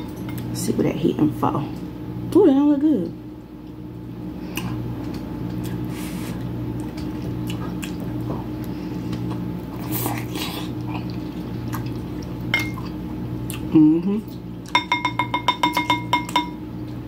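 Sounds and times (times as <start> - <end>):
steady low hum: 0.0 - 17.0
wet chewing and mouth clicks: 4.5 - 13.7.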